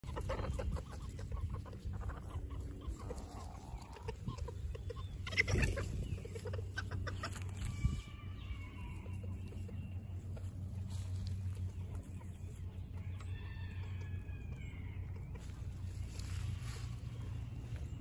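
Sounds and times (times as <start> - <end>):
bird calls: 0.0 - 18.0
clicks and rustles of straw: 9.6 - 12.6, 15.3 - 18.0.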